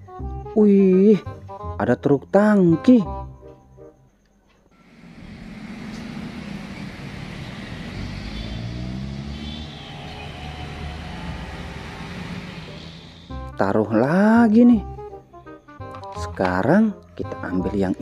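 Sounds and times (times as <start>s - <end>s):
engine rising in pitch: 4.8s - 13.6s
vehicles driving past: 4.8s - 13.6s
steady road noise: 4.8s - 14.1s.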